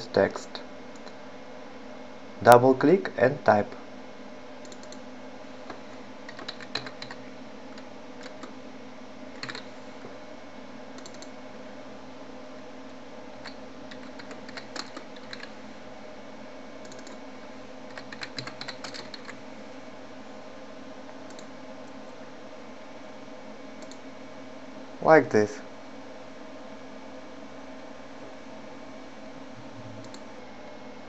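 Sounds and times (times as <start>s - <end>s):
steady low hum: 0.0s - 31.0s
typing on computer keyboard: 6.3s - 7.2s, 9.4s - 9.7s, 13.4s - 15.5s, 16.9s - 17.2s, 17.9s - 19.4s.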